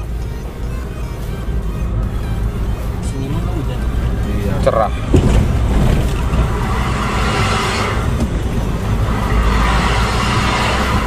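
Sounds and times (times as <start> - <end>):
motorcycle engine: 0.0 - 11.0
hiss: 8.9 - 11.0.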